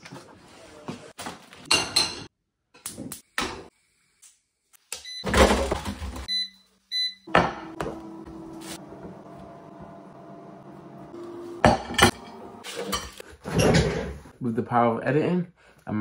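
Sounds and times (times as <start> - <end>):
kitchen rustling and clatter: 0.0 - 2.3, 5.3 - 6.3, 11.5 - 14.3
electronic appliance beeps: 5.0 - 5.5, 6.2 - 8.6.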